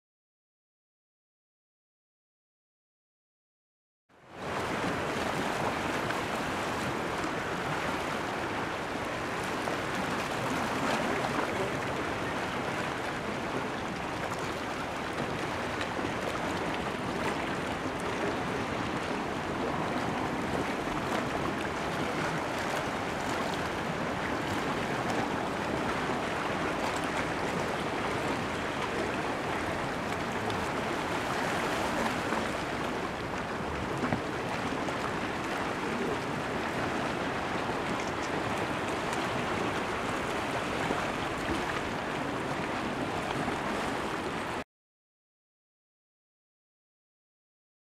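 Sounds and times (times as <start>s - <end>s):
sea waves washing against rocks: 15.4s - 44.6s.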